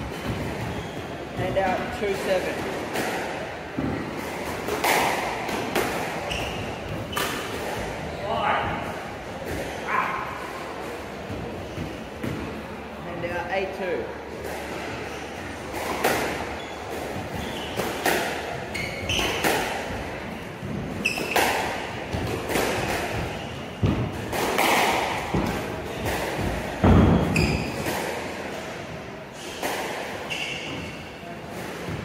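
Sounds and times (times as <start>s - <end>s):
shoes squeaking on wooden floor: 0.0s - 2.2s, 6.0s - 7.6s, 16.3s - 19.7s, 20.9s - 24.0s, 26.9s - 27.9s, 30.2s - 31.2s
squash ball smacking: 1.4s - 7.8s, 15.7s - 28.3s.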